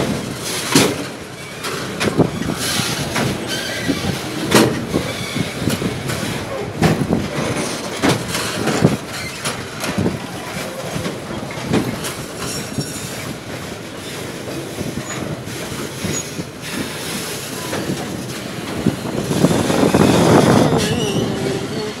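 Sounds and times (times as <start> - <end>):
freight train wheels knocking on rails: 0.0 - 22.0
wheel squeal: 1.4 - 6.7, 7.4 - 10.8, 14.0 - 17.3, 19.3 - 21.9.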